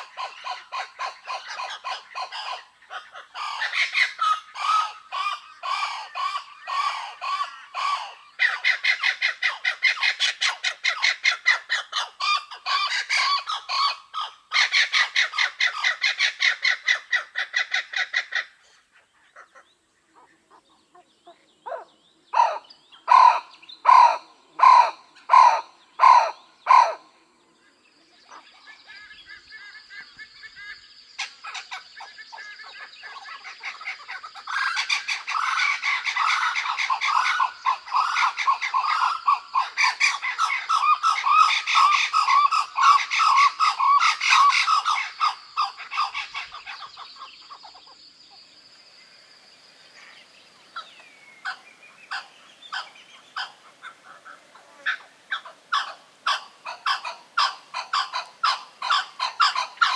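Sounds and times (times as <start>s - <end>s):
kookaburras cackling chorus: 0.0s - 48.4s, 49.9s - 59.9s
kookaburra harsh barks: 22.4s - 27.0s.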